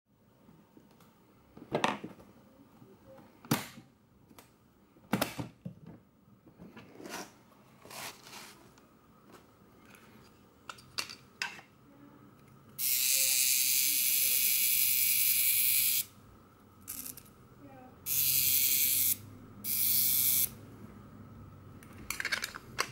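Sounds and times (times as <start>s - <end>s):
clockwork self-timer whirring: 12.8s - 16.1s, 18.1s - 20.6s
clicks and knocks of handling: 21.8s - 22.9s.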